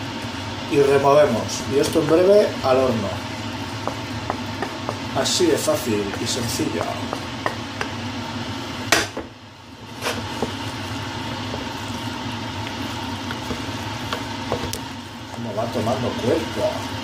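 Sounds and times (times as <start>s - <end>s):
steady hum: 0.0s - 17.0s
wooden spoon stirring in pot: 1.8s - 8.6s, 9.4s - 17.0s
pan knocking on metal pot: 3.8s - 5.1s.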